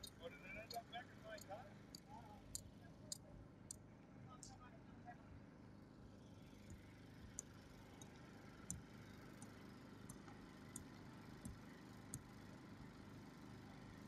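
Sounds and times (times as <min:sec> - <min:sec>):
light high ticks: 0:06.6 - 0:12.4.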